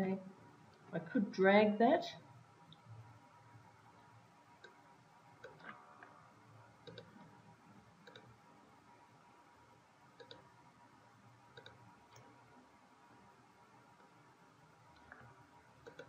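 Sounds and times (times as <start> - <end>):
computer mouse clicking: 4.0 - 4.8, 5.4 - 6.1, 6.8 - 7.3, 8.0 - 8.4, 10.2 - 10.5, 11.5 - 12.4, 14.9 - 16.0.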